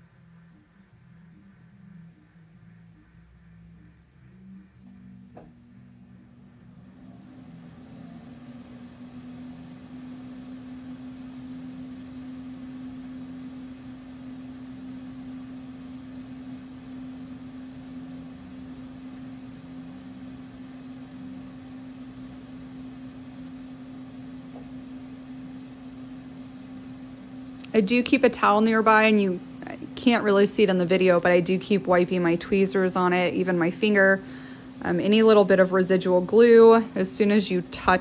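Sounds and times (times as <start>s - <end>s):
machine hum: 0.0s - 38.0s.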